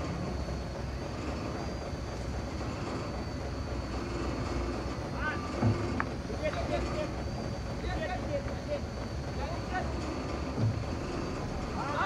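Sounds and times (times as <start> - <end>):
diesel engine rumbling: 0.0 - 12.0.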